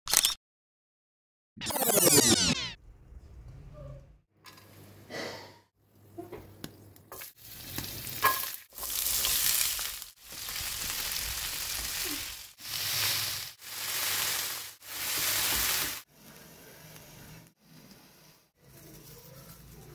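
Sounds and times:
vegetables sizzling in hot oil: 7.2 - 16.1.

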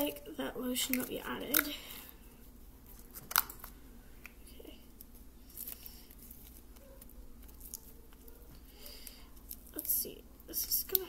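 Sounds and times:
slime squishing: 2.8 - 11.0.

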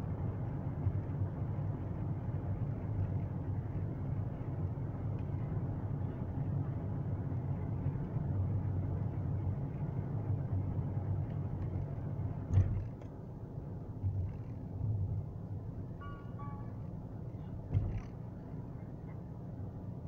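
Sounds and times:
car engine and road noise: 0.0 - 20.0
sharp thump: 17.7 - 18.1.

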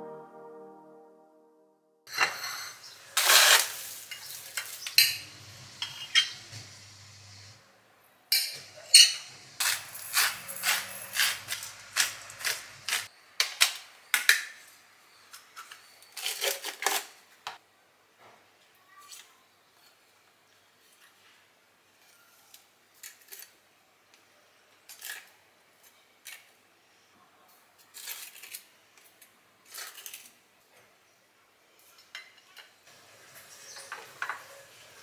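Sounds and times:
dishes and cutlery clinking: 5.8 - 6.5, 33.4 - 34.7.

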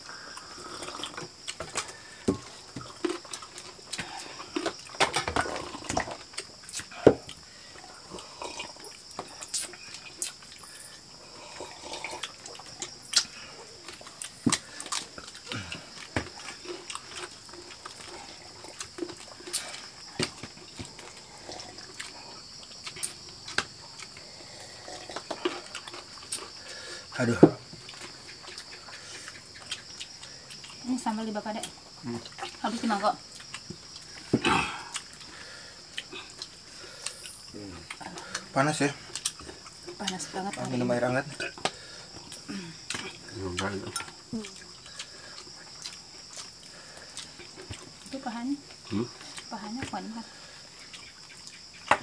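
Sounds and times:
wet chewing and lip smacks: 5.7 - 10.7, 11.8 - 24.3, 24.9 - 26.6, 27.8 - 30.8, 33.2 - 34.2, 34.9 - 38.5, 39.1 - 40.7, 43.6 - 48.1, 50.8 - 51.9.

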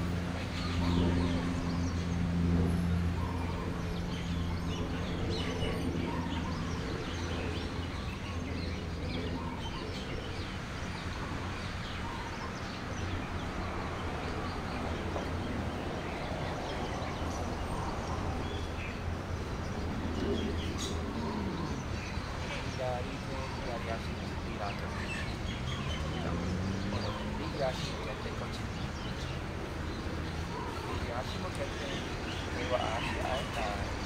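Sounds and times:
low engine hum: 0.0 - 12.2
small birds chirping: 0.0 - 34.0.

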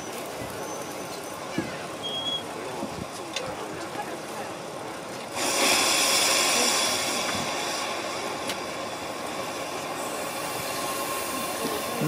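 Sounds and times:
steam locomotive hissing: 5.0 - 12.0.

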